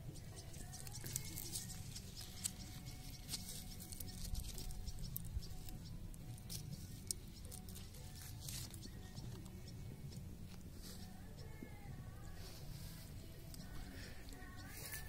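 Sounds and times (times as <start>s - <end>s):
leaves rustling: 0.4s - 9.1s, 12.2s - 15.0s.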